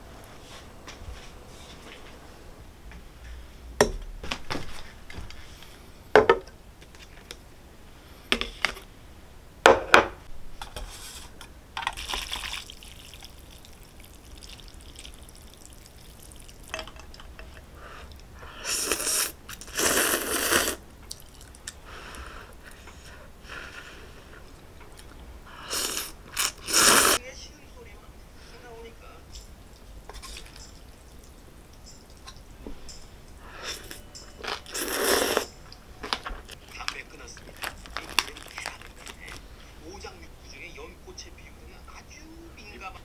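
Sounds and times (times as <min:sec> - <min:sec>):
noodles being slurped: 0:12.0 - 0:16.6, 0:18.6 - 0:21.7, 0:24.4 - 0:27.2, 0:33.6 - 0:35.5, 0:36.6 - 0:39.4.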